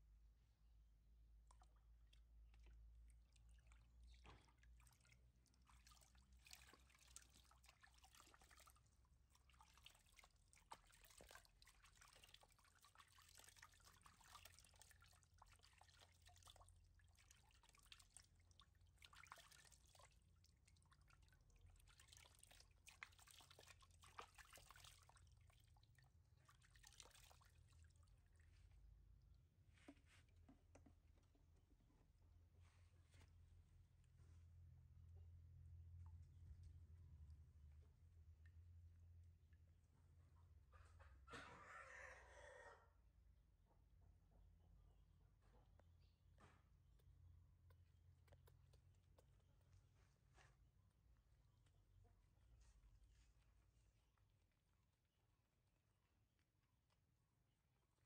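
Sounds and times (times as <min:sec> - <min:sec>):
water dripping into plastic basin: 0:01.2 - 0:28.6, 0:29.3 - 0:31.6, 0:45.7 - 0:50.0.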